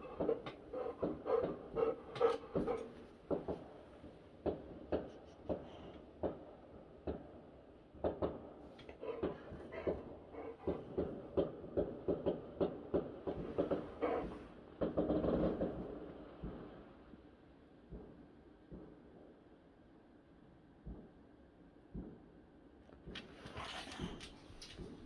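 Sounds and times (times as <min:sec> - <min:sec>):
muffled fireworks bangs: 0:00.0 - 0:19.4, 0:20.8 - 0:22.4.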